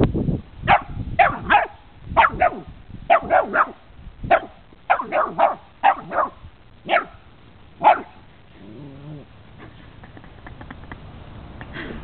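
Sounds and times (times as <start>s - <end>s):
dog barking: 0.7s - 7.2s, 7.8s - 8.2s.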